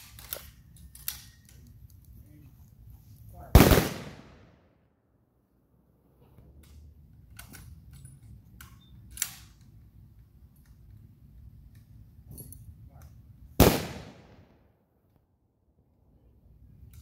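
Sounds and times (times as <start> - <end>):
rifle volley: 3.5 - 4.7, 13.6 - 14.6.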